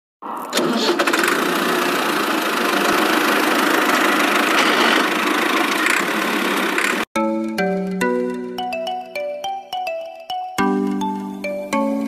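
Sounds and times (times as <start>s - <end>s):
toy tractor engine drone: 0.4s - 7.1s.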